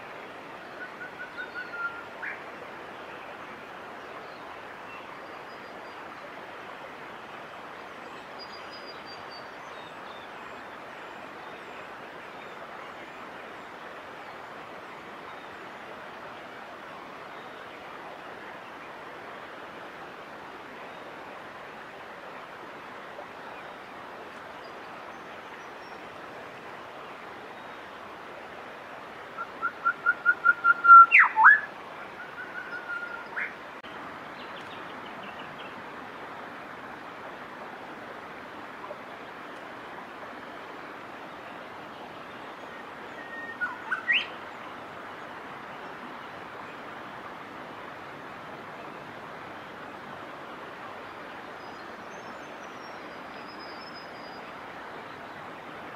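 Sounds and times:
bird whistling calls: 0:00.8 - 0:02.4, 0:29.4 - 0:33.5, 0:43.2 - 0:44.4.

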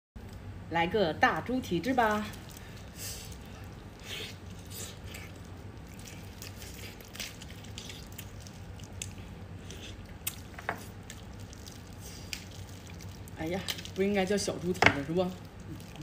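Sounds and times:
wet chewing and tearing meat: 0:01.9 - 0:16.0.

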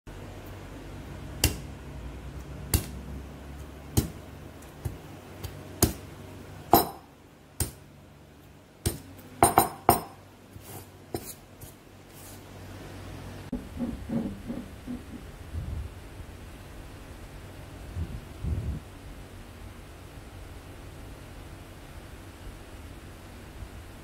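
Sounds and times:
tool knocking on cutting board: 0:13.5 - 0:15.2.

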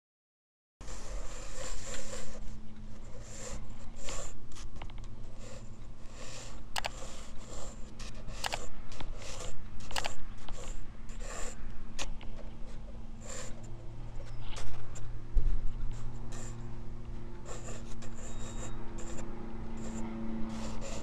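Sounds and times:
pencil sketching on paper: 0:00.8 - 0:21.0
sharp ticks: 0:06.4 - 0:11.2.

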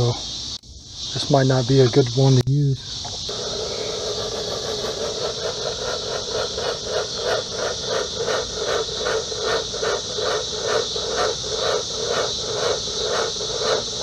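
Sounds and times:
smoke machine pulsing hiss: 0:03.2 - 0:14.0.

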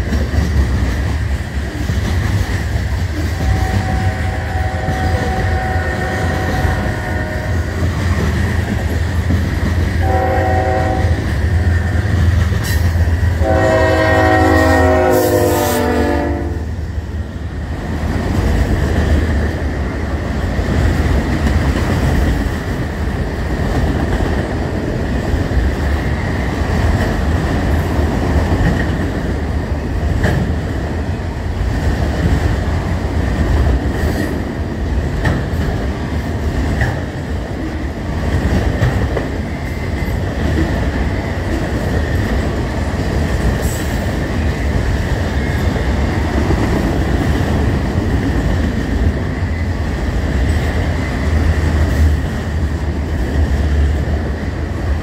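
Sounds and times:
locomotive air horn blasts: 0:03.4 - 0:07.9, 0:10.0 - 0:11.8, 0:13.4 - 0:16.7.

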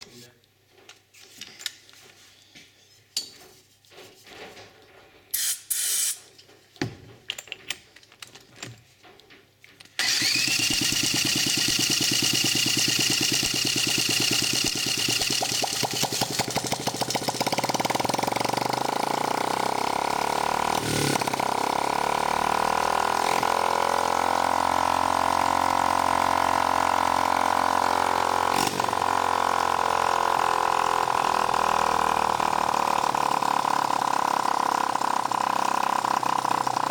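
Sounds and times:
cordless drill whining: 0:10.0 - 0:15.1
small engine running lumpy: 0:10.0 - 0:36.9.

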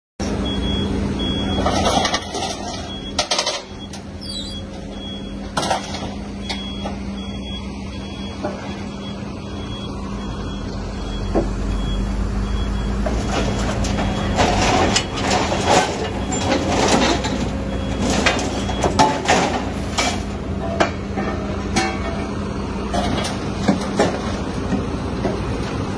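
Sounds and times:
excavator diesel engine: 0:00.2 - 0:25.9
metal clanks and scraping: 0:01.5 - 0:06.6, 0:13.0 - 0:25.4
scrap shear crunching steel: 0:13.0 - 0:22.3.

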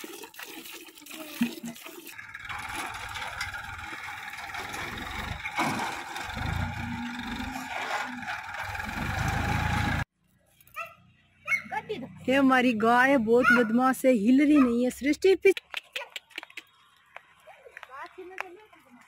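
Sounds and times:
tractor engine under load: 0:02.2 - 0:10.1.

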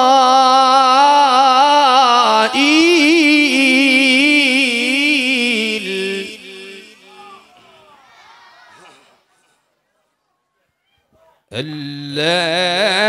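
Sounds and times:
man chanting melodic recitation: 0:00.0 - 0:07.5, 0:11.5 - 0:13.0.

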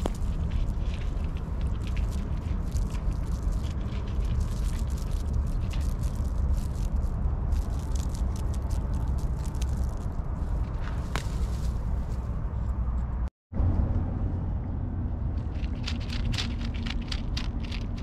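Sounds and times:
grass stem rustling and crackling: 0:00.0 - 0:12.3
steady low rumble: 0:00.0 - 0:18.0.

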